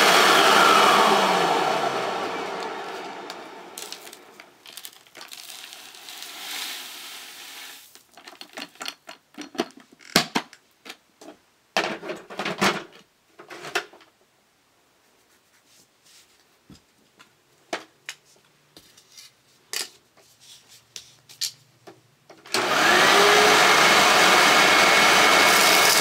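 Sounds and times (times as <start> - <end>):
soft hiss: 3.4 - 8.2
debris rattling out of canister: 3.8 - 9.5.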